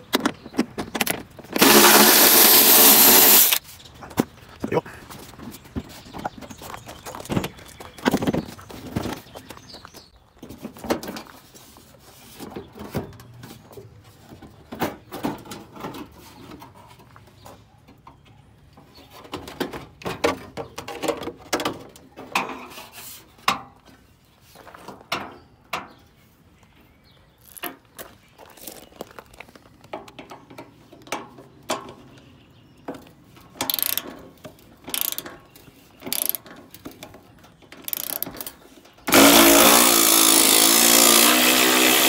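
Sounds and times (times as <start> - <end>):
metal and plastic parts rattling: 33.3 - 39.1.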